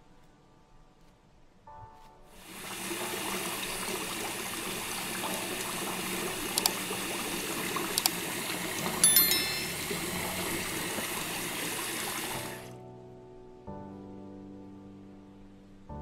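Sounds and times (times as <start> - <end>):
tap water running into sink: 2.6 - 9.0
sharp clicks: 6.6 - 6.8.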